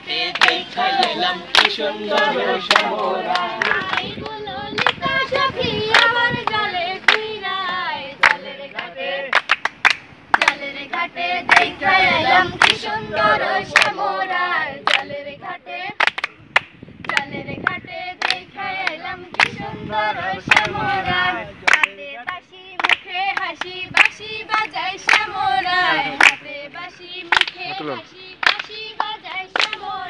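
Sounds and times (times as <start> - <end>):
group singing unaccompanied: 0.0 - 16.4, 17.0 - 30.0
hands clapping: 0.2 - 5.1, 5.9 - 11.7, 12.6 - 12.8, 13.7 - 14.0, 14.8 - 15.1, 16.0 - 19.6, 20.5 - 20.8, 21.6 - 25.3, 26.1 - 26.4, 27.2 - 30.0.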